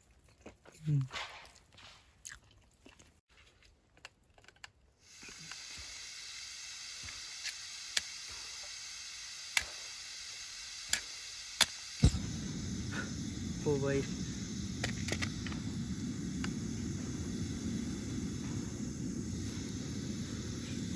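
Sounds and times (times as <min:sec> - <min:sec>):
gas stove burner hissing: 0:05.0 - 0:20.9
matches being struck: 0:07.0 - 0:08.5, 0:09.5 - 0:09.9, 0:14.7 - 0:15.7.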